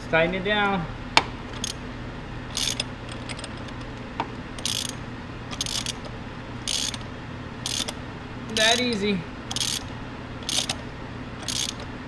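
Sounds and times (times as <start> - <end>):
ratchet wrench clicking: 1.5 - 1.8, 2.5 - 3.8, 4.6 - 7.0, 7.6 - 10.8, 11.4 - 11.9.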